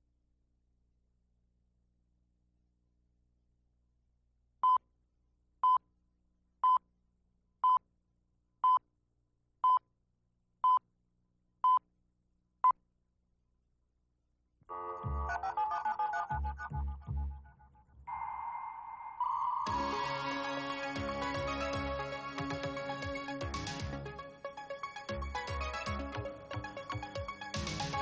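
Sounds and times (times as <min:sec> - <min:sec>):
theme music with heavy beats: 0:19.7 - 0:28.0.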